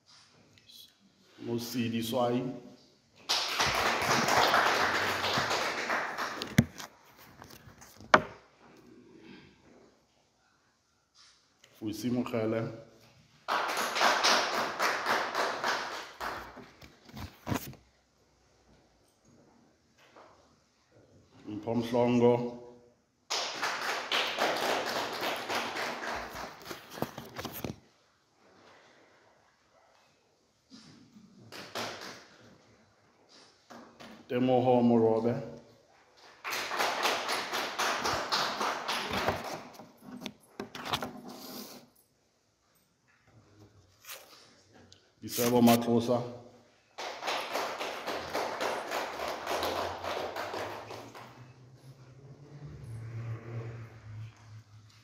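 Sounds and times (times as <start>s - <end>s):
hands clapping: 3.2s - 7.0s, 13.4s - 17.0s, 23.3s - 27.3s, 31.4s - 32.6s, 36.2s - 39.8s, 46.9s - 51.5s
audience applause: 3.3s - 6.7s, 13.5s - 16.6s, 23.3s - 26.6s, 36.4s - 39.5s, 47.0s - 51.5s.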